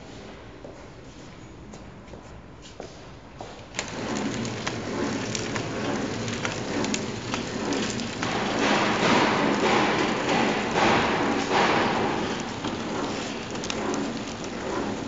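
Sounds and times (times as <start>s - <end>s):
wrapping machine rattling: 3.7s - 15.0s.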